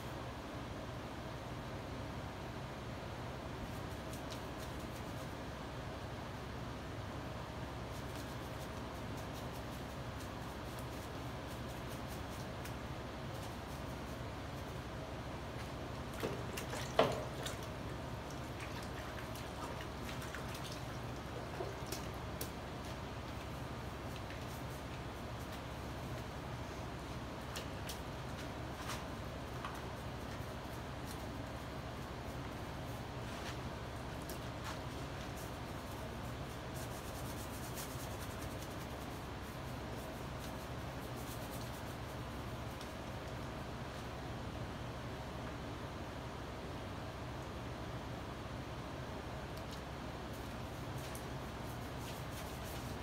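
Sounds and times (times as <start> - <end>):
steady low hum: 0.0 - 53.0
wet splashes and drips: 16.0 - 23.4
paintbrush scrubbing cloth: 34.5 - 42.9, 50.4 - 53.0.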